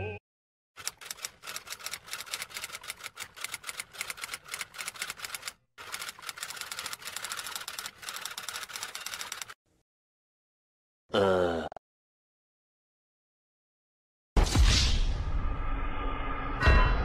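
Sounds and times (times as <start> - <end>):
typewriter keystrokes: 0.8 - 9.6.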